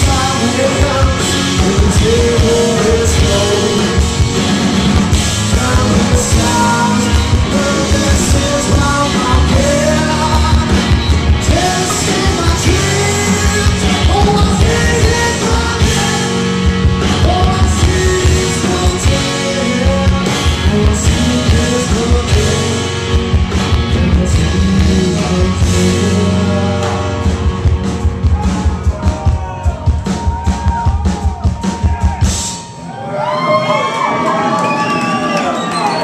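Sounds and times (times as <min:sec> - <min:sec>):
live rock band playing: 0:00.0 - 0:36.0
crowd cheering and whooping: 0:28.1 - 0:36.0.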